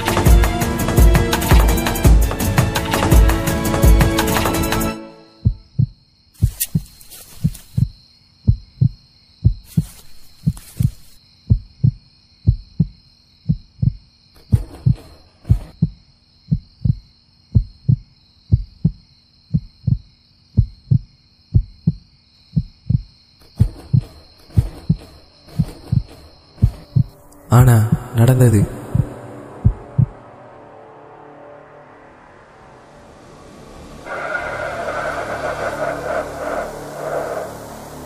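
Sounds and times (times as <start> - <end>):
heartbeat thumps: 5.4 - 30.3
hissy rustles: 9.7 - 11.2.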